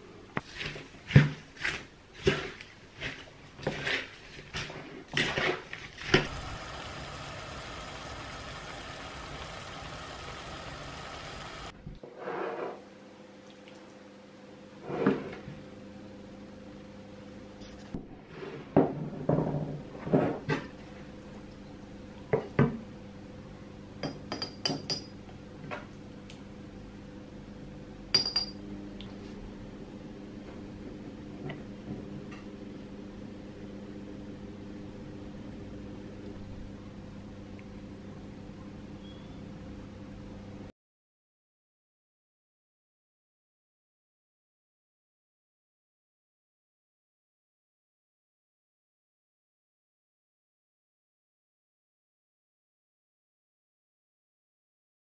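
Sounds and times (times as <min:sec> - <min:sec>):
wooden spatula scraping a pan: 0:00.4 - 0:06.2, 0:12.1 - 0:12.8
steady hiss: 0:06.3 - 0:11.7
metal spoon clinking on glass jar: 0:28.2 - 0:28.6.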